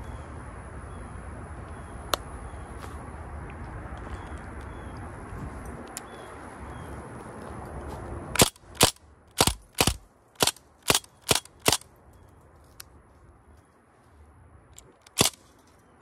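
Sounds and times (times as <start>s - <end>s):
air rifle shots: 8.4s - 11.9s, 15.0s - 15.5s.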